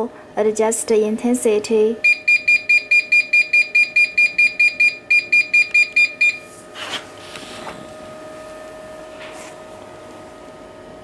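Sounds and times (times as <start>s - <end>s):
faint steady hum: 0.0s - 11.0s
rapid short high beeps: 2.0s - 6.4s.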